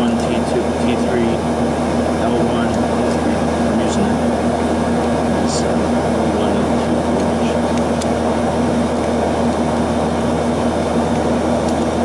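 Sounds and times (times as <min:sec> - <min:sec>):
steady machine drone: 0:00.0 - 0:12.0.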